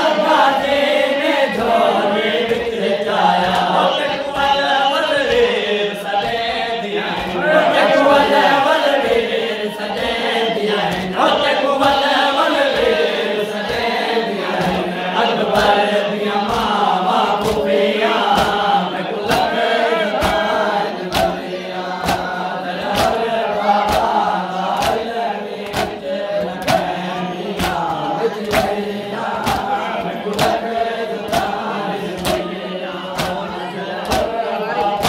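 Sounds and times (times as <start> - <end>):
men chanting in chorus: 0.0 - 35.0
hands slapping chests: 17.4 - 17.7, 20.2 - 20.5, 21.1 - 21.4, 22.0 - 23.2, 23.8 - 28.8, 29.4 - 32.5, 33.1 - 35.0.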